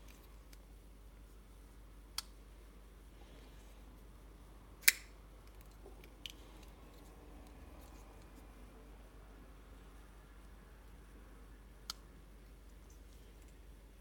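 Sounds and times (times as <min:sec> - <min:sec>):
folding knife blade clicking: 0:04.8 - 0:05.1.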